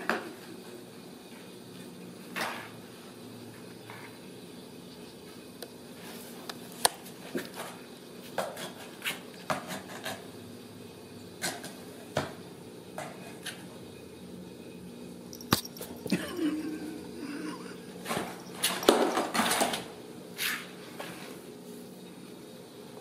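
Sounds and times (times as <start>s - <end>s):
kitten scratching cardboard: 8.6s - 10.2s.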